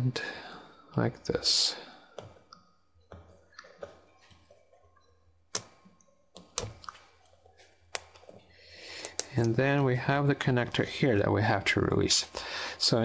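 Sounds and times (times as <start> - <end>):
fingers clicking on plastic: 2.1 - 7.2, 9.0 - 9.6.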